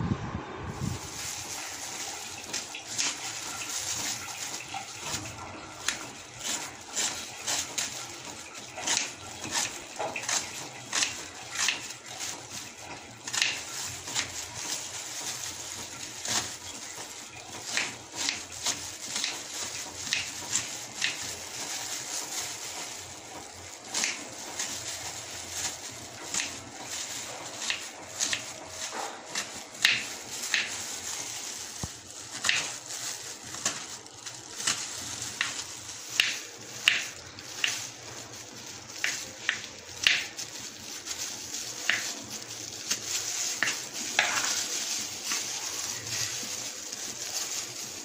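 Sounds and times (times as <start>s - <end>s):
onion crunching: 0.7s - 48.0s.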